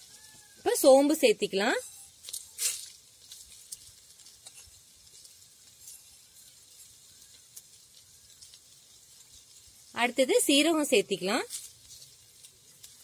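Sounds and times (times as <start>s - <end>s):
food sizzling in hot oil: 0.0s - 13.0s
small crackles: 0.0s - 13.0s.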